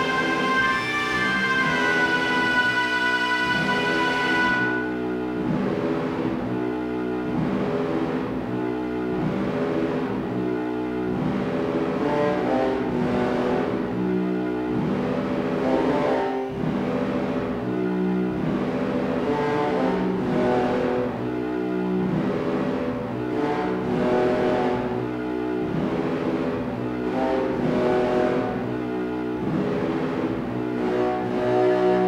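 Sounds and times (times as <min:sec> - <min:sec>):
lo-fi synthesizer drone music: 0:00.0 - 0:32.0.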